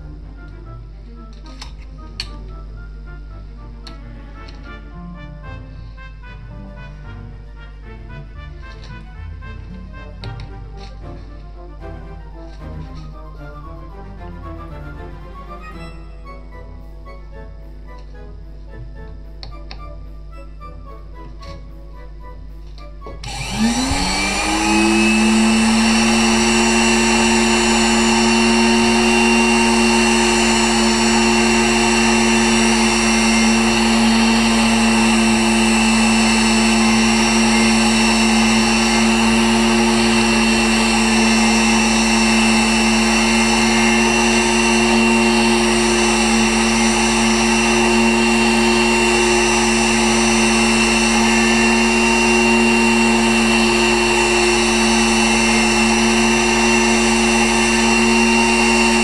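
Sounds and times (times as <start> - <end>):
engraving machine motor whine: 23.2 - 59.0.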